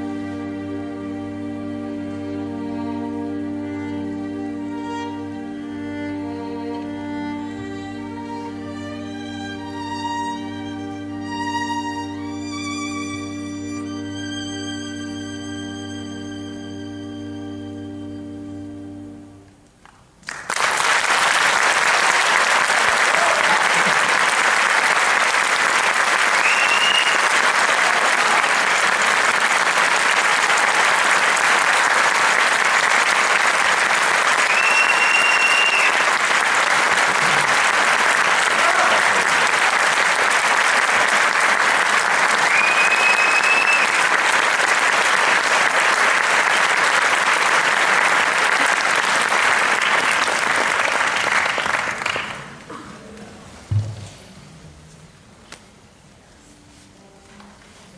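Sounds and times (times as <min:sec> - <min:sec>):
audience applauding: 0:19.9 - 0:52.7.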